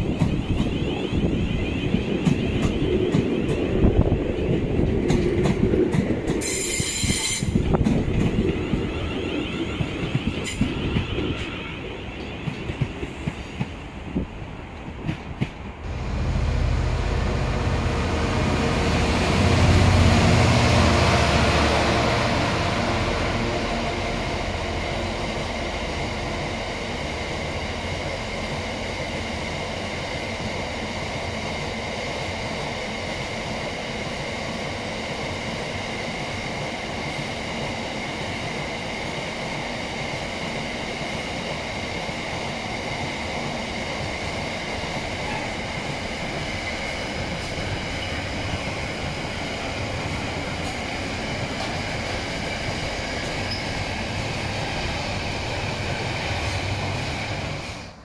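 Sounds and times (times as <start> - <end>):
locomotive engine: 15.8 - 30.0.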